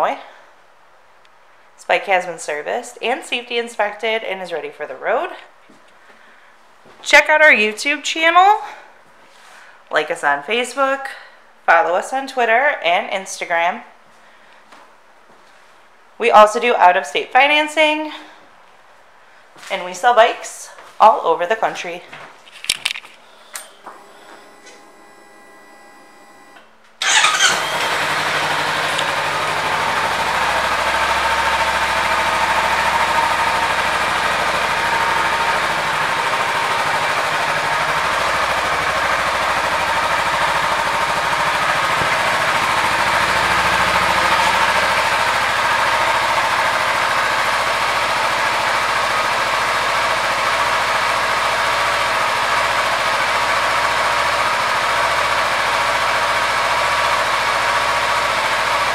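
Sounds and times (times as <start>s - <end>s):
electric starter cranking: 23.6s - 58.9s
motorcycle engine running: 23.8s - 58.9s.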